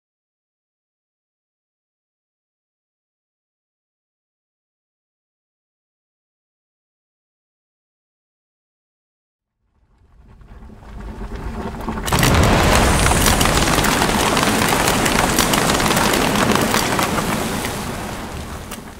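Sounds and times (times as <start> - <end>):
explosion rumble and boom: 9.7 - 18.9
crackle of small pops: 9.9 - 18.9.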